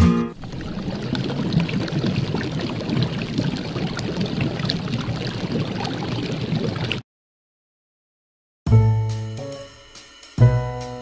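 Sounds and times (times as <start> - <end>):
rushing water: 0.3 - 7.0.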